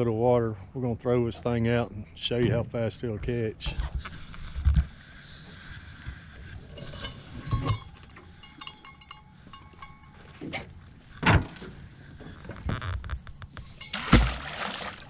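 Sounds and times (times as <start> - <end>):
anchor chain clinking: 6.4 - 12.2, 13.5 - 14.1
thin metallic ringing: 6.6 - 10.6.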